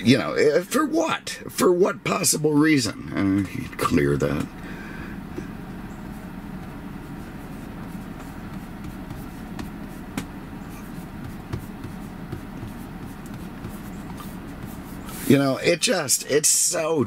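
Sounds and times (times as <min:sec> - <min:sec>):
low background rumble: 0:00.0 - 0:17.0
fingertip tapping on touchscreen: 0:07.8 - 0:14.8.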